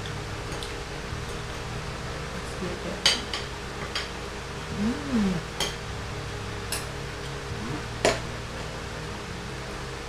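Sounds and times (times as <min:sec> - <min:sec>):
electric fan humming: 0:04.3 - 0:08.4
person humming briefly: 0:04.7 - 0:05.6, 0:07.5 - 0:08.0.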